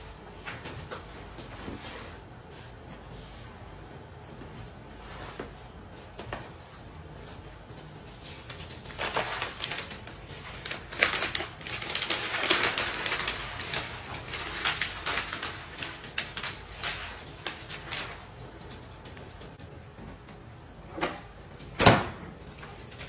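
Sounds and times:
newspaper rustling and crackling: 0:06.4 - 0:19.6.

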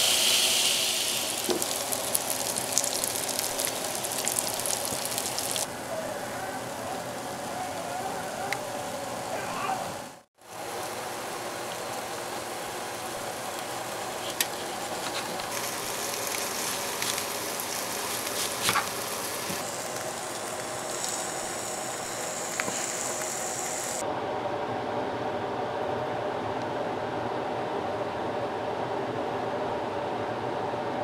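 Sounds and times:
steady hiss: 0:00.0 - 0:24.0.

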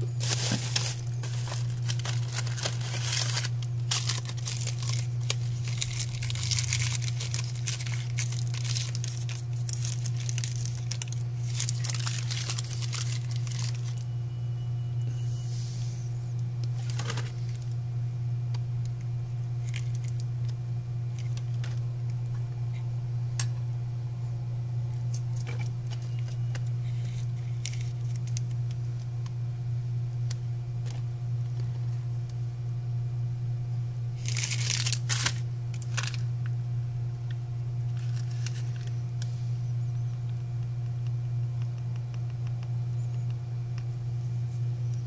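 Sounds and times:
handling rustle: 0:00.0 - 0:14.0, 0:34.2 - 0:36.2, 0:38.0 - 0:39.3
steady low hum: 0:00.0 - 0:45.0.

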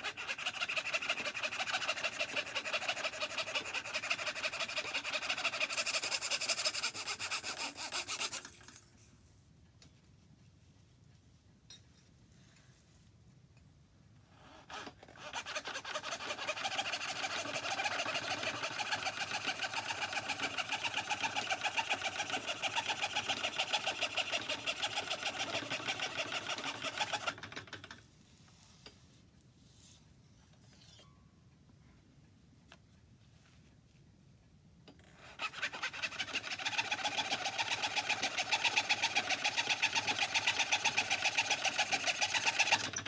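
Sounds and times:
fretsaw cutting wood: 0:00.0 - 0:08.8, 0:14.6 - 0:27.5, 0:35.2 - 0:43.0.

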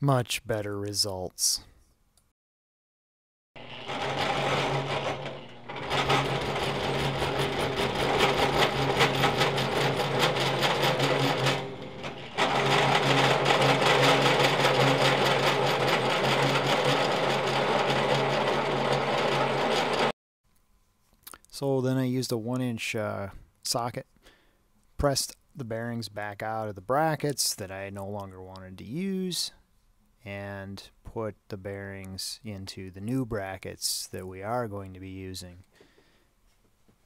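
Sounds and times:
drill bit grinding steel: 0:03.6 - 0:20.1
drill press motor hum: 0:03.6 - 0:20.1.

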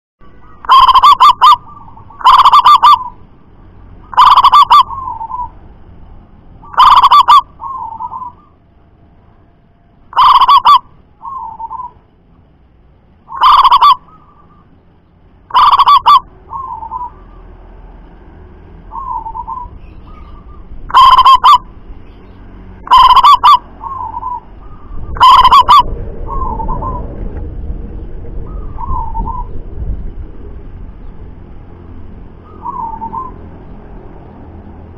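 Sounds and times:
dove cooing: 0:00.6 - 0:03.2, 0:04.1 - 0:05.6, 0:06.6 - 0:08.6, 0:10.2 - 0:12.0, 0:13.3 - 0:14.6, 0:15.5 - 0:17.4, 0:18.9 - 0:21.7, 0:22.8 - 0:27.2, 0:28.4 - 0:29.6, 0:32.4 - 0:33.4.

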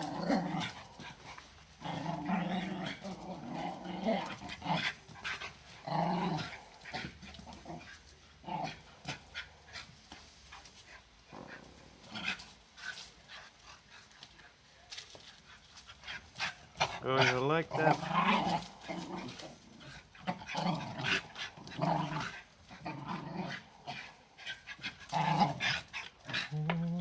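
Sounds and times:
dogs growling: 0:00.0 - 0:14.3, 0:15.5 - 0:27.0
dogs scuffling: 0:00.0 - 0:27.0.

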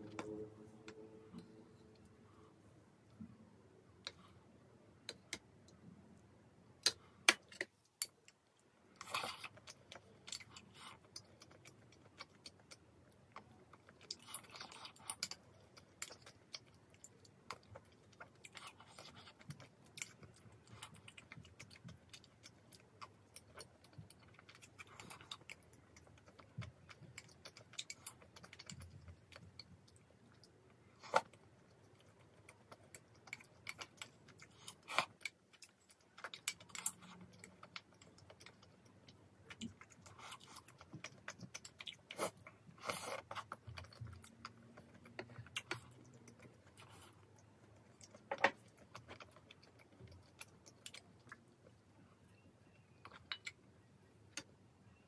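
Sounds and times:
chewing: 0:06.8 - 0:52.0.

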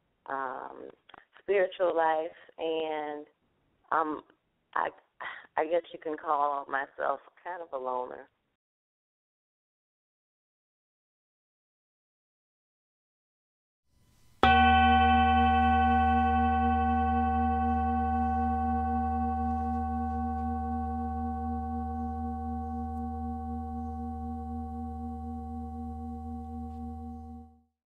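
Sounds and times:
deep low hum: 0:14.4 - 0:27.6
singing bowl ringing: 0:14.4 - 0:27.7.

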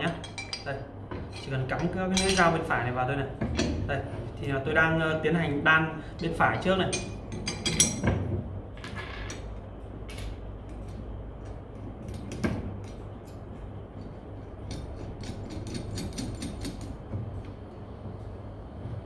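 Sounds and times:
steady low hum: 0:00.0 - 0:19.0
metal blades clicking and clinking: 0:00.1 - 0:00.7, 0:01.3 - 0:02.6.

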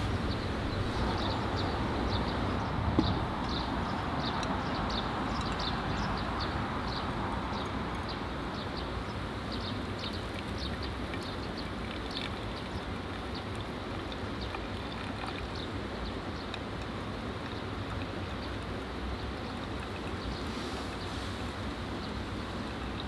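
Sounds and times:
hot water pouring onto coffee: 0:10.0 - 0:15.7, 0:19.3 - 0:21.0.

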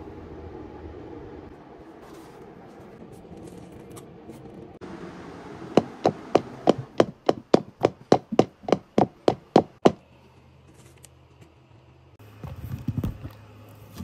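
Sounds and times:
sharp knocks: 0:05.8 - 0:10.0.

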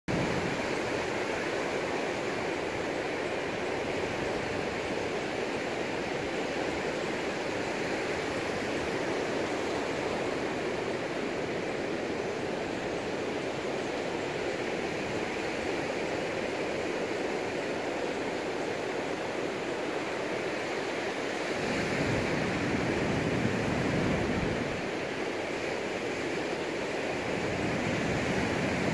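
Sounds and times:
waves breaking on sandy beach: 0:00.1 - 0:28.9.

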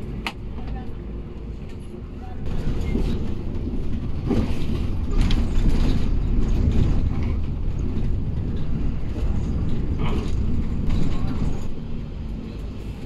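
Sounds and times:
bus engine and road rumble: 0:00.0 - 0:13.0
body fittings rattling and creaking: 0:02.5 - 0:11.8.

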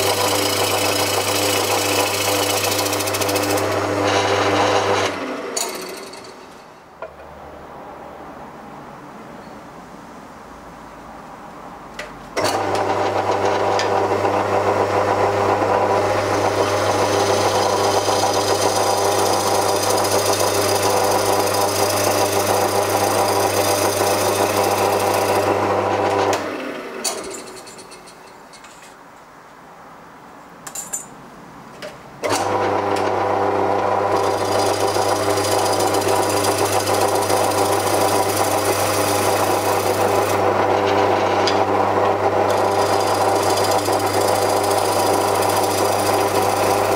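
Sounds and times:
gouge cutting wood: 0:00.0 - 0:05.1, 0:34.1 - 0:41.6, 0:42.4 - 0:46.9
wood lathe motor hum: 0:00.0 - 0:06.4, 0:12.4 - 0:27.5, 0:32.2 - 0:46.9.

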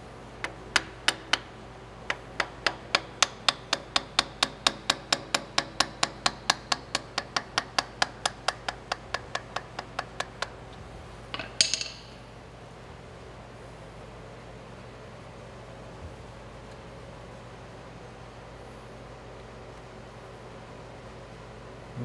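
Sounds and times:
metal-on-metal tapping: 0:00.4 - 0:01.5, 0:02.1 - 0:10.6, 0:11.3 - 0:12.2.

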